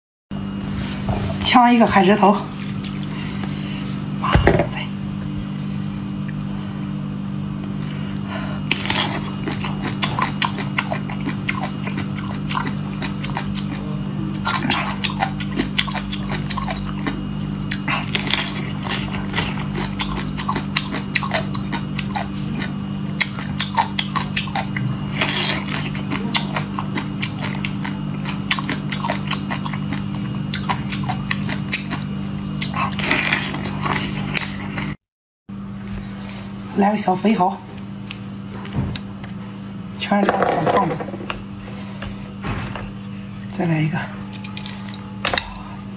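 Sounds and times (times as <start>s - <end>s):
steady low hum: 0.3s - 45.9s
crunching and chewing: 2.4s - 3.8s, 6.0s - 35.0s, 37.7s - 39.4s, 44.2s - 45.6s.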